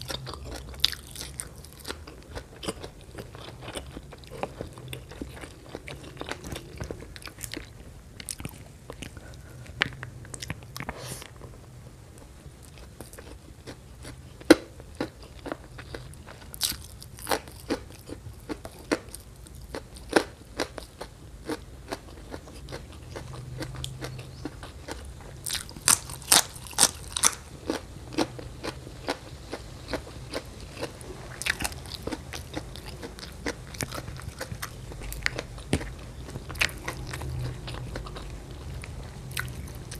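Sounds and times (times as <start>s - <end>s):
person chewing food: 0.0s - 11.6s, 12.2s - 39.9s.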